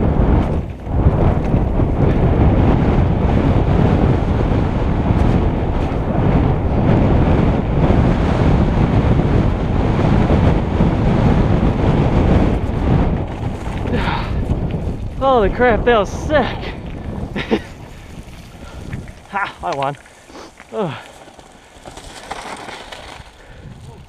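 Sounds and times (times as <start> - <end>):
tyres rumbling over dirt: 0.0 - 24.0
wind rushing over microphone: 0.0 - 24.0
bike knocking over bumps: 12.4 - 15.2, 16.8 - 24.0.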